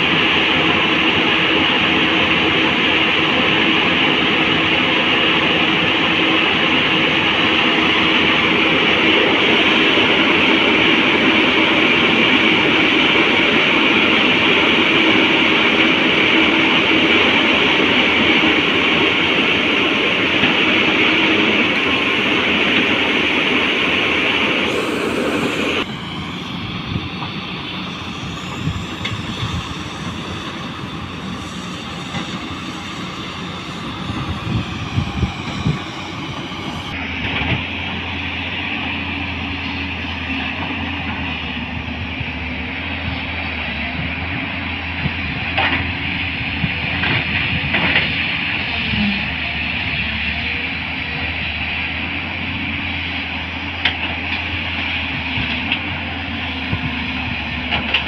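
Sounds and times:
steady whine: 0.0s - 44.0s
diesel engine and hydraulics: 0.0s - 58.0s.

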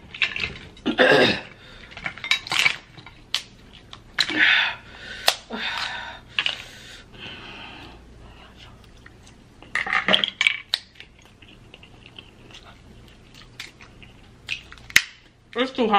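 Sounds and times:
crab shells cracking: 1.8s - 4.4s, 5.2s - 6.5s, 9.1s - 15.4s.

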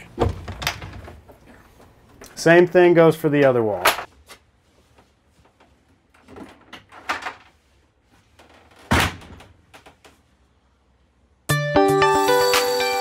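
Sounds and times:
music: 11.5s - 13.0s.

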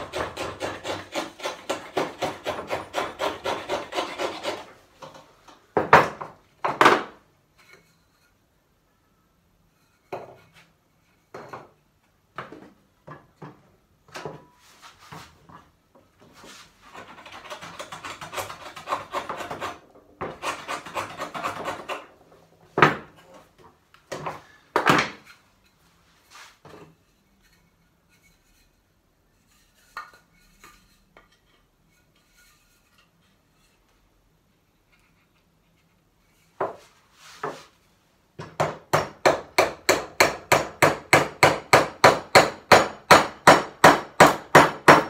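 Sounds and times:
plane shaving wood: 0.0s - 4.7s, 17.1s - 22.1s.

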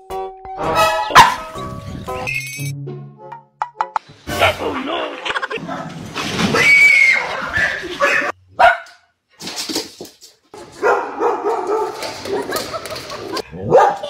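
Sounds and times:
dog barking: 1.1s - 1.5s, 8.0s - 9.1s, 10.8s - 12.6s, 13.6s - 14.0s.

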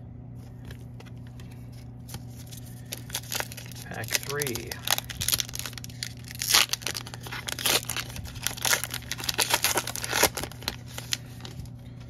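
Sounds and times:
wrapper tearing and crinkling: 2.1s - 11.6s.

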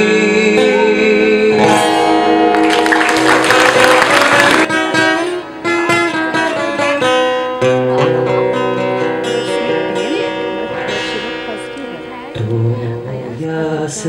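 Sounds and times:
acoustic guitar melody: 0.0s - 14.0s
low bass note: 1.5s - 5.4s.

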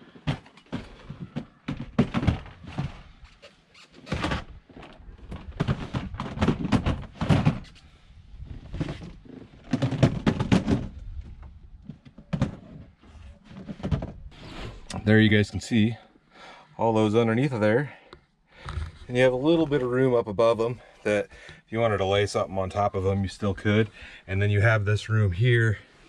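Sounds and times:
plastic totes thunking and scraping: 0.0s - 15.1s.

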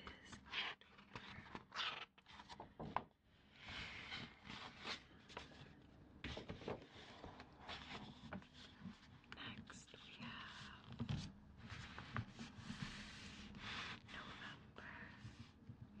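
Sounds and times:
paper pages rustling and turning: 0.3s - 9.2s, 10.8s - 14.0s.

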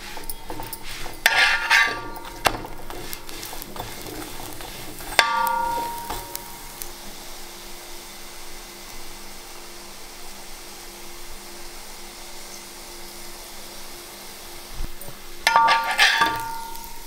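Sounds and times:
metal spatula scraping griddle: 0.0s - 6.7s, 15.5s - 17.0s
oil sizzling: 0.0s - 17.0s
sharp metallic clang: 5.2s - 6.4s, 15.5s - 17.0s.

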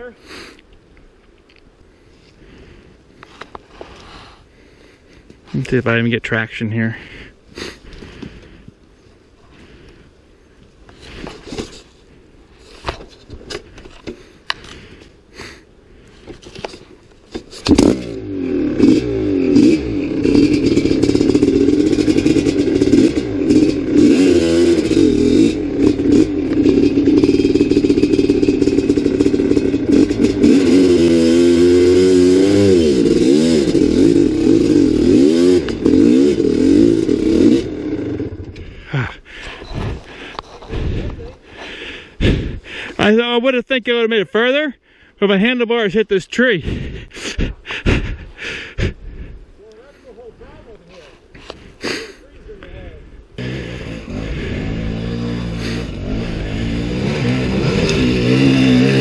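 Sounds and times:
dirt bike engine revving: 17.6s - 39.1s, 53.4s - 59.0s.

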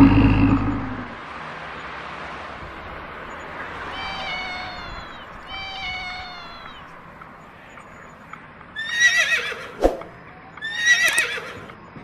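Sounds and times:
high-pitched quavering animal calls: 3.8s - 7.1s, 10.6s - 11.6s.

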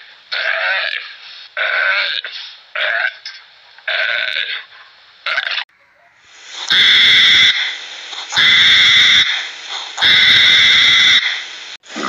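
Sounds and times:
hedgehog harsh calls: 6.6s - 11.4s.

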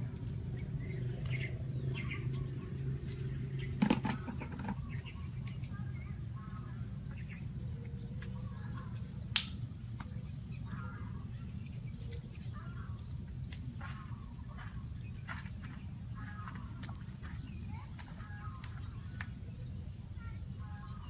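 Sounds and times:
small birds chirping: 0.0s - 21.0s
sharp crack: 9.1s - 10.1s.

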